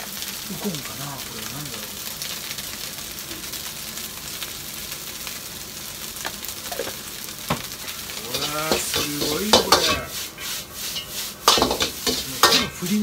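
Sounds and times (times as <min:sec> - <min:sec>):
rice sizzling in a wok: 0:00.0 - 0:13.0
knocks against a wok: 0:11.5 - 0:12.7.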